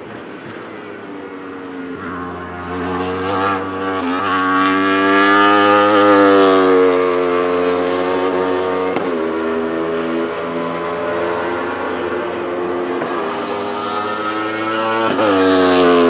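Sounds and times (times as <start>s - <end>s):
race car engine accelerating: 2.0s - 16.0s.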